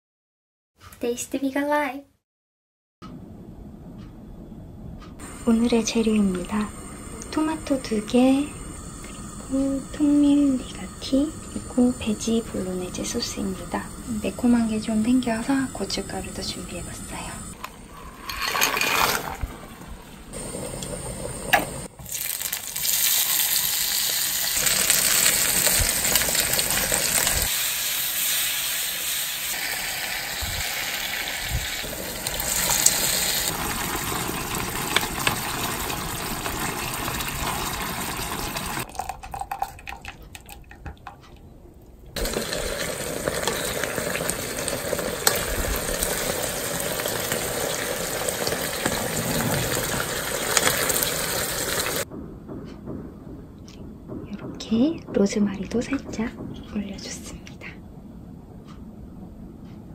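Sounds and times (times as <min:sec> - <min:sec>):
sauce sizzling in a frying pan: 0:05.2 - 0:17.6, 0:20.4 - 0:38.9, 0:42.2 - 0:52.1
water boiling in a pot: 0:05.2 - 0:41.1, 0:42.2 - 0:52.1.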